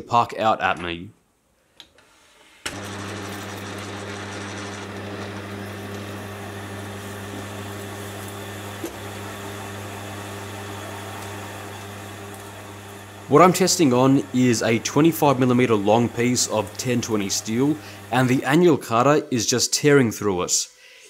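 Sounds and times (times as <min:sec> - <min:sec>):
metal lathe humming: 0:02.7 - 0:18.5.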